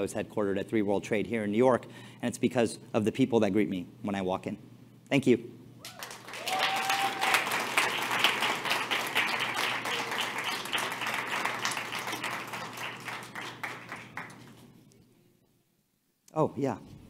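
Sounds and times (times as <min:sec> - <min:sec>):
audience applauding: 0:05.8 - 0:14.6.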